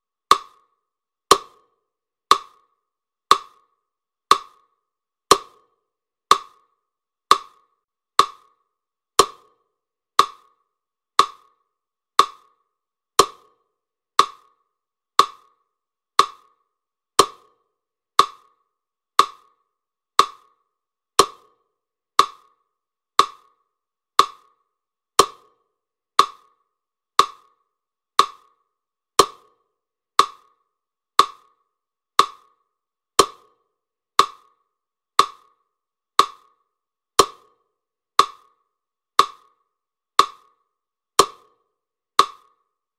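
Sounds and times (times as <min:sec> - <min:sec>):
wooden tick: 0:00.3 - 0:00.7, 0:02.3 - 0:02.7, 0:03.3 - 0:04.7, 0:06.3 - 0:06.7, 0:07.3 - 0:08.6, 0:10.2 - 0:10.6, 0:11.2 - 0:11.6, 0:12.2 - 0:12.6, 0:14.2 - 0:14.6, 0:15.2 - 0:15.6, 0:16.2 - 0:16.6, 0:18.2 - 0:18.6, 0:19.2 - 0:19.6, 0:20.2 - 0:20.6, 0:22.2 - 0:22.6, 0:23.2 - 0:23.6, 0:24.2 - 0:24.6, 0:27.2 - 0:27.6, 0:28.2 - 0:28.6, 0:30.2 - 0:30.6, 0:31.2 - 0:31.6, 0:32.2 - 0:32.6, 0:34.2 - 0:34.6, 0:35.2 - 0:35.6, 0:36.2 - 0:36.6, 0:38.2 - 0:38.6, 0:39.2 - 0:39.6, 0:40.2 - 0:40.6, 0:41.2 - 0:41.6, 0:42.2 - 0:42.6.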